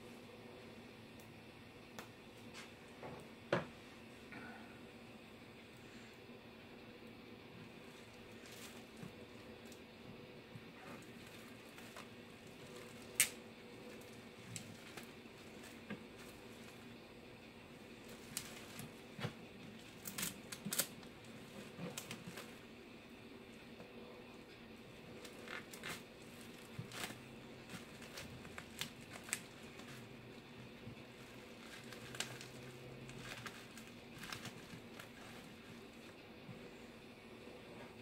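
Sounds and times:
bubble wrap crinkling: 7.6 - 23.8, 24.4 - 36.3.

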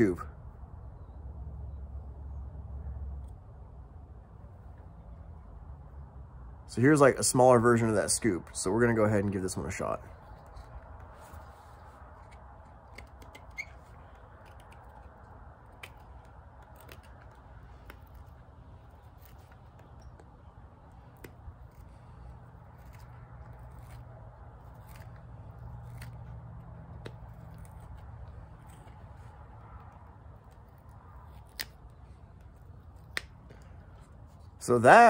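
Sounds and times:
low steady hum: 0.0 - 35.0
knife scraping wood: 10.1 - 34.6.

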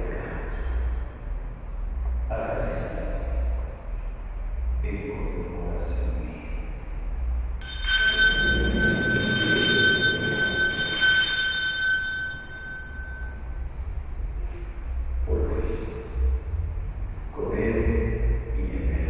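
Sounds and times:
altar bells ringing: 7.6 - 13.8.

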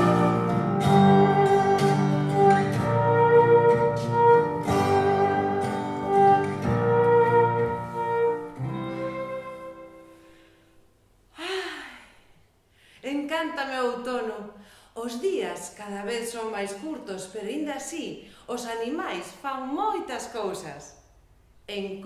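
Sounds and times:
instrumental background music: 0.0 - 10.4.

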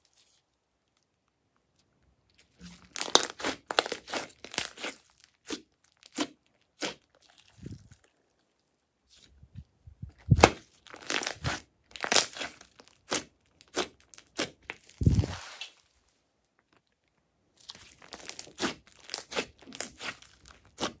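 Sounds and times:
slime squelching: 2.2 - 9.3, 10.1 - 16.0, 16.6 - 21.0
air pockets popping in slime: 10.2 - 15.4.

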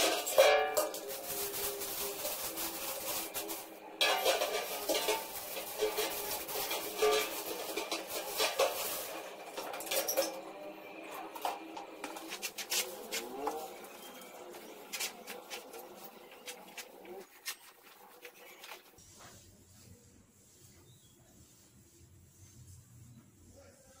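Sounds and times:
metal bin clinking and rattling: 0.0 - 10.4.

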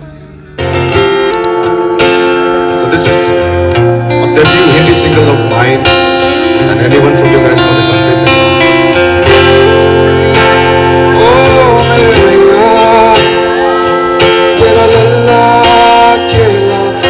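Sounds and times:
acoustic guitar: 0.0 - 17.0
electric guitar: 0.0 - 17.0
man singing: 9.6 - 17.0.

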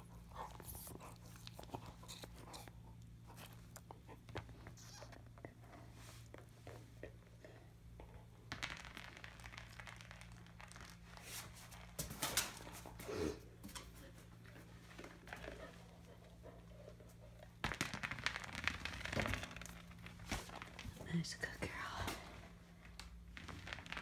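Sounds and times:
rustling and crackling: 13.6 - 24.0.

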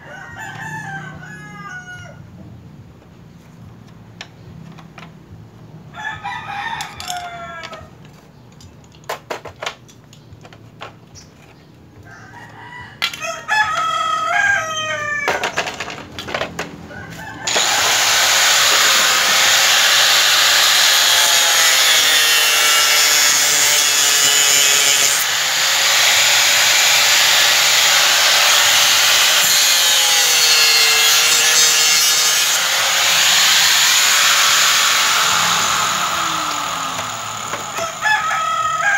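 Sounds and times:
rooster crowing: 0.0 - 2.3, 5.9 - 7.9, 12.0 - 15.3, 16.9 - 17.8, 37.7 - 38.9
angle grinder running: 17.5 - 38.2.

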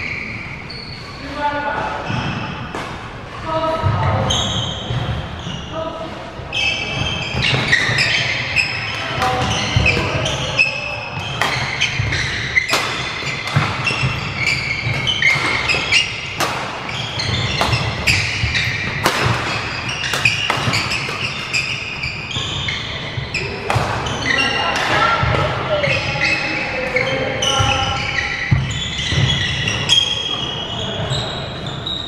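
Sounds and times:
shoes squeaking on floor: 0.0 - 2.7, 3.5 - 32.0
racket striking shuttlecock: 11.2 - 21.8.

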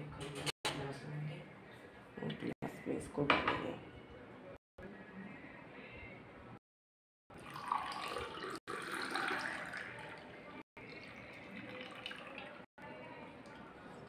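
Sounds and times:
liquid pouring into a glass: 7.3 - 12.7.

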